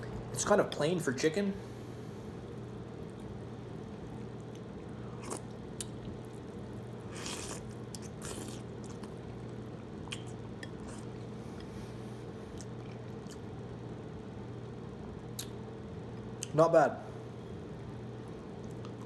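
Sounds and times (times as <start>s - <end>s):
steady low hum: 0.0s - 19.0s
chewing: 3.1s - 11.7s, 12.5s - 13.5s
slurping noodles: 7.1s - 9.1s.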